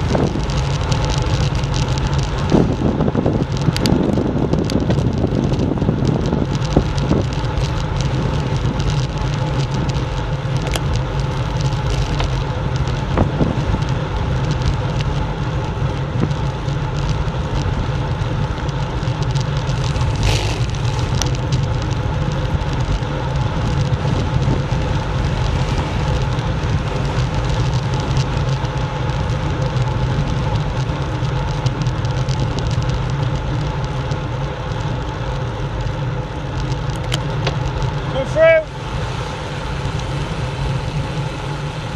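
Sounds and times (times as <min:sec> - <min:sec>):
bicycle tyres rumbling on rough lane: 0:00.0 - 0:41.9
wind rushing over microphone: 0:00.0 - 0:41.9
sharp knocks from road bumps: 0:37.0 - 0:37.8.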